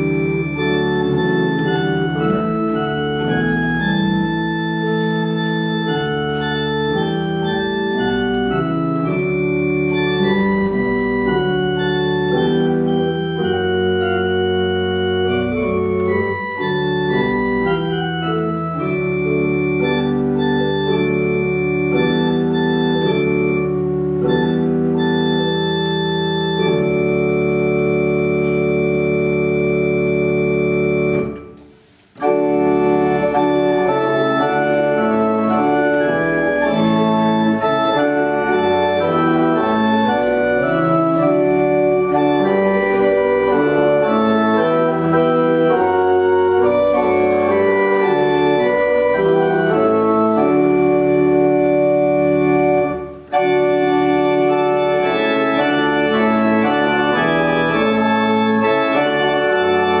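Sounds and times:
organ playing a hymn: 0:00.0 - 1:00.0.

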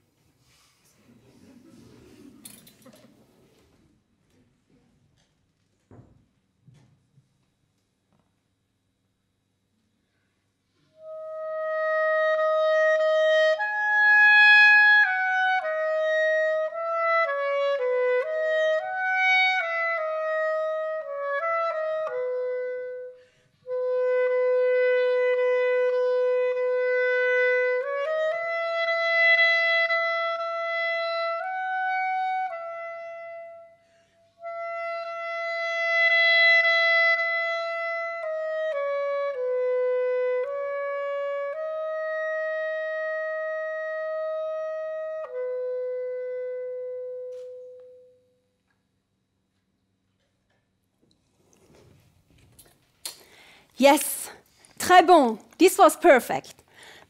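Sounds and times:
solo clarinet melody: 0:10.9 - 0:48.4.

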